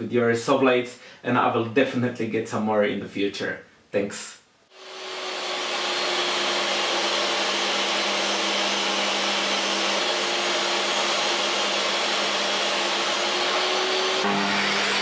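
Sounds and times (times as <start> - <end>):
table saw running: 4.7 - 15.0.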